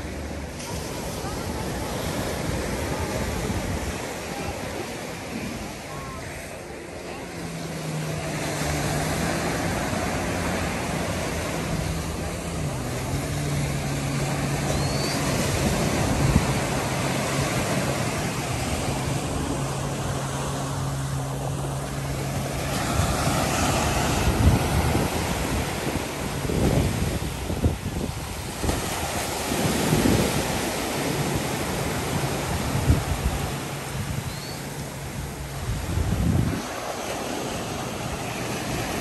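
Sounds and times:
wind on microphone: 0.0 - 6.4, 9.6 - 21.3, 22.3 - 39.0
surf breaking on sand: 0.0 - 39.0
low engine drone: 4.1 - 27.2.

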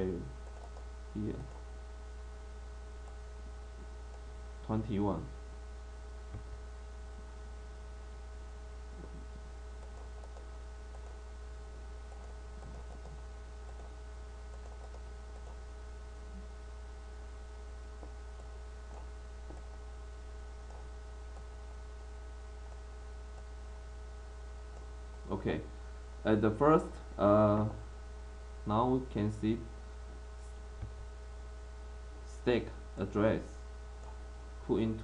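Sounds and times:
electrical mains hum: 0.0 - 35.0
keyboard and mouse clicks: 0.4 - 0.9, 9.8 - 11.2, 12.1 - 15.6.

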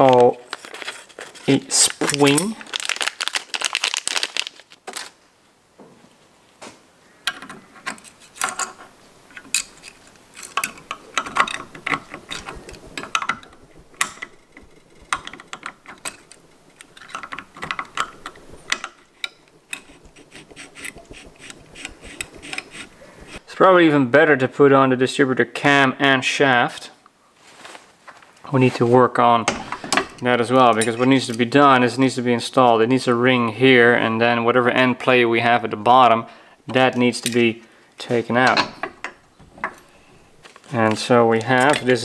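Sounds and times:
small metal parts clicking and clinking: 0.1 - 3.1, 7.3 - 23.4.

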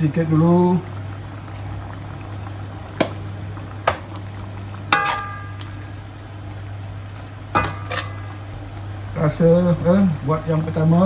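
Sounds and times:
low steady hum: 0.0 - 11.0
sauce simmering with bubbling hiss: 0.0 - 11.0
utensil clinking against pan: 4.9 - 5.6.

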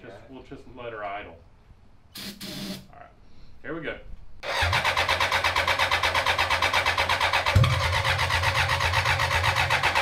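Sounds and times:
motorcycle engine cranking and sputtering: 4.4 - 10.0.

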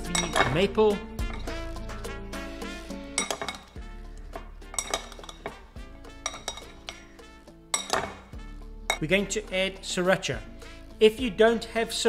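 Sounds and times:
metal spoon clinking on ceramic bowl: 0.0 - 0.6, 3.2 - 3.8, 4.7 - 8.3
background music with held notes: 0.0 - 12.0.

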